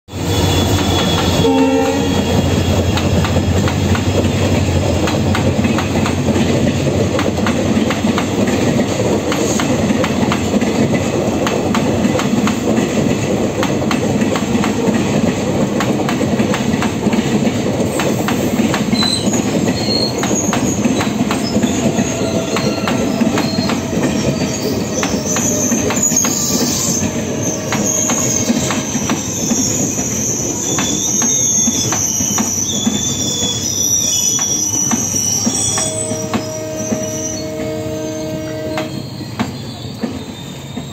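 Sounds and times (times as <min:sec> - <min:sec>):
diesel locomotive engine roar: 0:00.1 - 0:40.9
train horn blast: 0:00.2 - 0:02.9, 0:21.8 - 0:25.8, 0:26.6 - 0:28.8, 0:35.6 - 0:39.2
wheel squeals: 0:00.2 - 0:03.6, 0:18.2 - 0:40.9.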